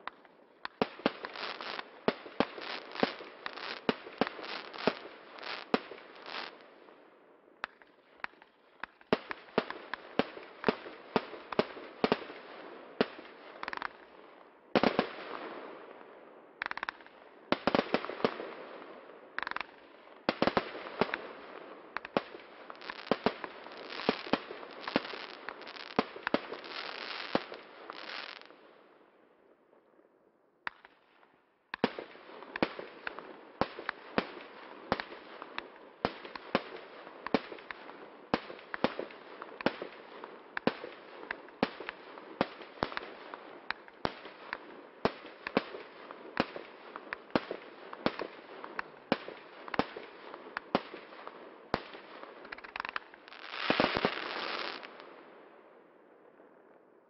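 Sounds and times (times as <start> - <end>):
fireworks crackling: 0.0 - 6.7, 16.6 - 28.5, 31.8 - 55.2
fireworks cake firing: 51.8 - 55.0.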